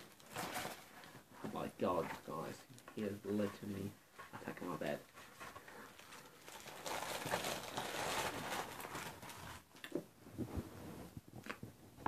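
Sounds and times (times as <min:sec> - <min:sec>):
paper packaging crumpling: 0:00.0 - 0:00.9, 0:05.4 - 0:09.8.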